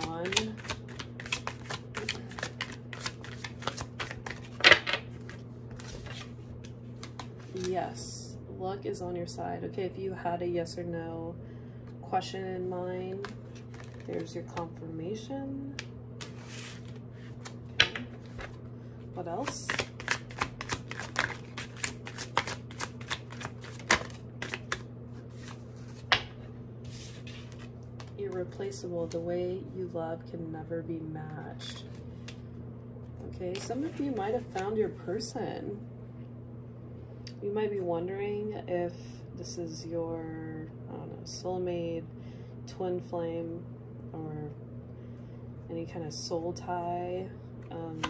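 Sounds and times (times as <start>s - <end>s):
cards being shuffled: 0.0s - 7.7s, 13.1s - 14.5s, 15.8s - 18.6s, 19.3s - 28.2s, 33.5s - 34.7s.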